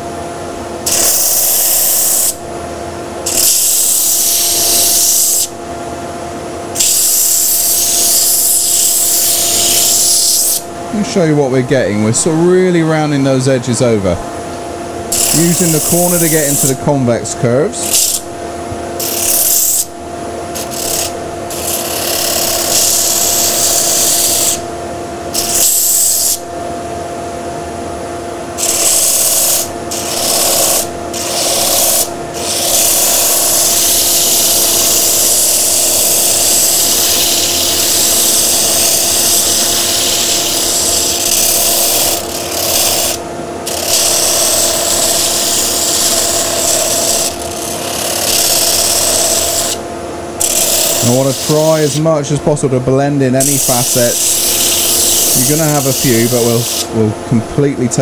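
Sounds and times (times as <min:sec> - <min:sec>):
steady machine hum: 0:00.0 - 0:58.0
sanding disc rasping on wood: 0:28.7 - 0:49.8, 0:50.4 - 0:52.1, 0:53.4 - 0:56.9.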